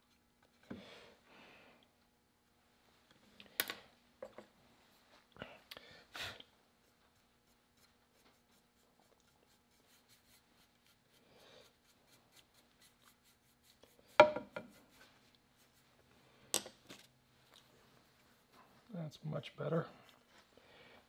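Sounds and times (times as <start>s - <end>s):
paintbrush scratching on wood: 6.8s - 16.2s, 17.8s - 18.9s.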